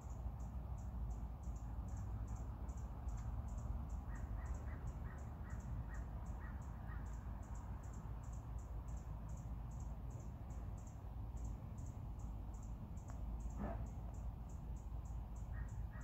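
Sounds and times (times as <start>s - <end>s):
low urban rumble: 0.0s - 16.0s
crow cawing in the distance: 15.5s - 16.0s.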